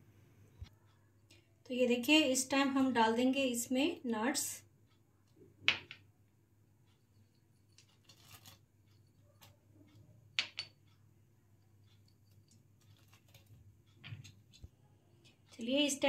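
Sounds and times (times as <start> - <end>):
small clicks and taps: 11.8 - 15.7.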